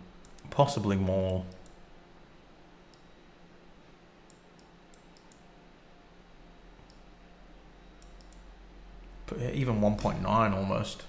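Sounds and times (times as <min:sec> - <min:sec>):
low steady hum: 0:00.0 - 0:11.0
computer mouse clicks: 0:00.2 - 0:00.5, 0:01.2 - 0:01.8, 0:02.9 - 0:03.1, 0:04.3 - 0:05.5, 0:06.8 - 0:07.1, 0:08.0 - 0:08.5.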